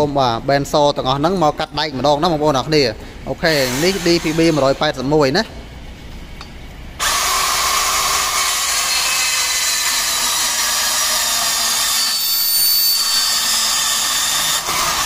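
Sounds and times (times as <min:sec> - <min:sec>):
band saw cutting steel tube: 0:07.0 - 0:15.0.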